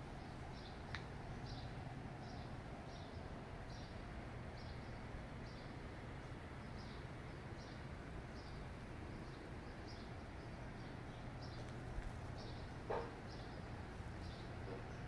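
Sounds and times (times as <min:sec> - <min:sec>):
low city hum: 0:00.0 - 0:15.0
bird chirping: 0:00.2 - 0:04.0, 0:06.6 - 0:15.0.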